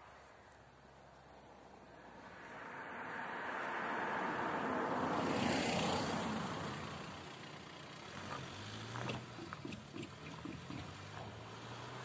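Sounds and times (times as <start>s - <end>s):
car passing close by: 1.8s - 12.0s
low engine hum: 1.8s - 12.0s
wheels knocking over rails: 8.9s - 11.5s.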